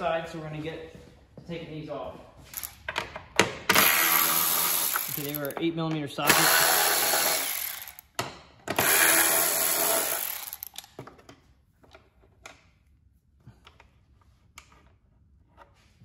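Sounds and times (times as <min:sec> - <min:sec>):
electric ratchet whirring: 0:02.6 - 0:02.8, 0:03.7 - 0:05.5, 0:06.2 - 0:08.1, 0:08.7 - 0:10.9.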